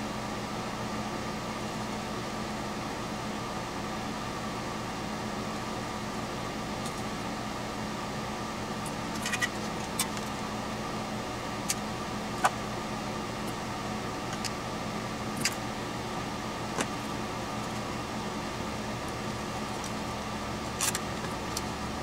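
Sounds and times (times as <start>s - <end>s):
steady background hum: 0.0s - 22.0s.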